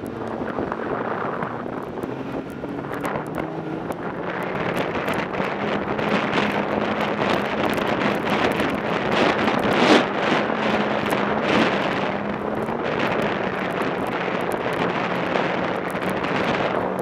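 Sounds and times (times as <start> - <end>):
snowmobile engine drone: 0.0 - 17.0
wind buffeting microphone: 0.0 - 17.0.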